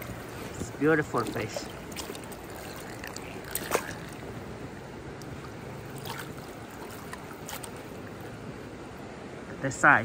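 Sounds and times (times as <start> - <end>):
river water rushing: 0.0 - 10.0.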